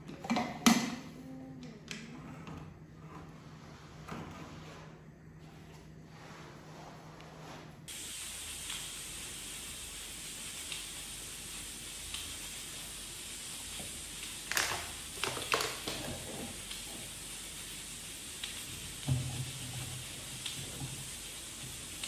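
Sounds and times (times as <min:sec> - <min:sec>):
pressure cooker hissing: 0:07.9 - 0:22.0.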